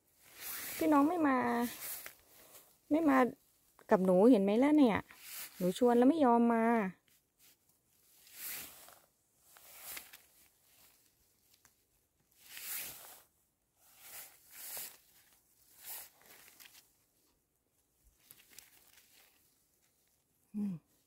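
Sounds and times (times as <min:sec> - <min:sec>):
rustling and tearing: 0:00.2 - 0:02.7, 0:07.1 - 0:11.8, 0:12.4 - 0:13.3, 0:13.9 - 0:17.2, 0:18.0 - 0:20.2.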